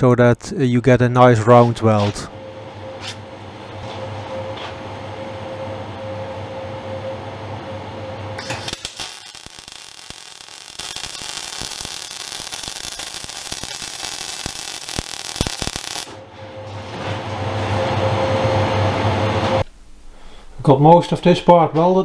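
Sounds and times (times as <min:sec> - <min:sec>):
steady hum: 0:00.0 - 0:22.0
welder arc crackling: 0:08.4 - 0:16.2.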